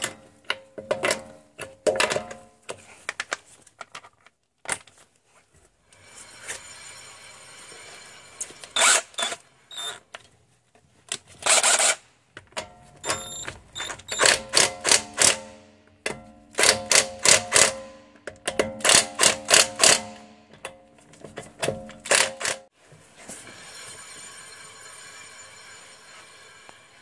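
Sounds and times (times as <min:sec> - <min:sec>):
wheel spinning whirr: 0:05.9 - 0:10.0, 0:23.2 - 0:27.0
impact wrench hammering: 0:12.6 - 0:22.6.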